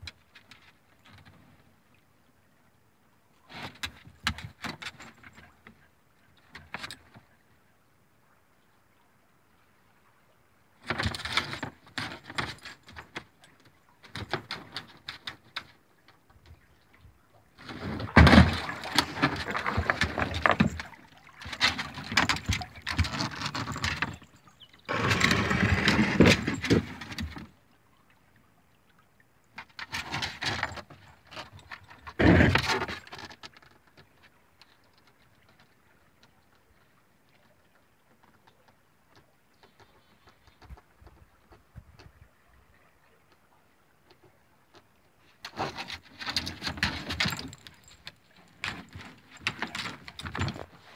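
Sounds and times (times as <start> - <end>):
paddle splashing water: 10.8 - 50.9.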